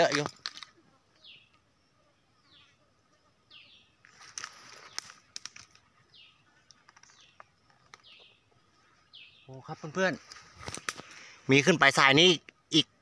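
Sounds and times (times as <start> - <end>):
brief rustle: 4.0 - 5.9, 10.2 - 11.3.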